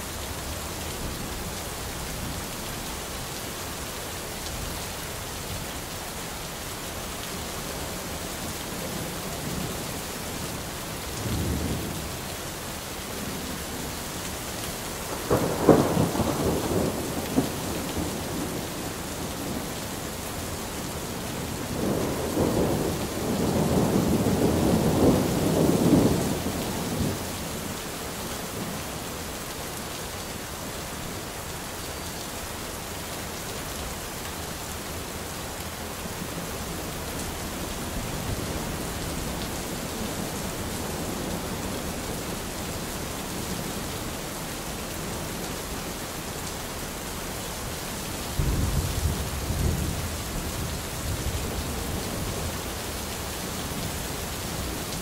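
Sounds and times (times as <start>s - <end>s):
steady rain: 0.0s - 55.0s
thunder rumbling and cracking: 15.2s - 19.7s, 48.4s - 51.6s.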